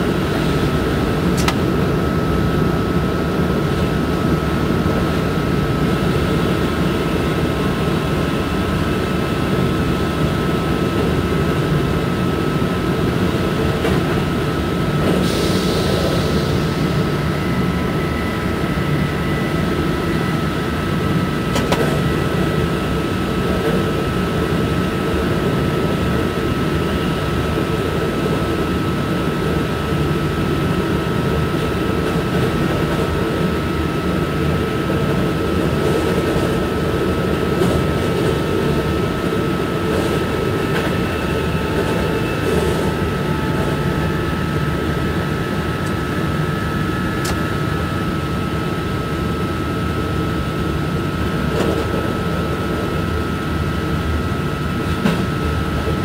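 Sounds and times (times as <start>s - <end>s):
constant high whine: 0.0s - 56.0s.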